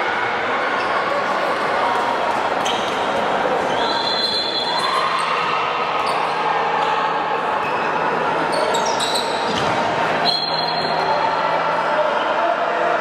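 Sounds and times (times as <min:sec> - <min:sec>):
echoing sports hall din: 0:00.0 - 0:13.0
shoe squeaks: 0:02.6 - 0:05.0, 0:07.6 - 0:09.6, 0:10.2 - 0:11.1.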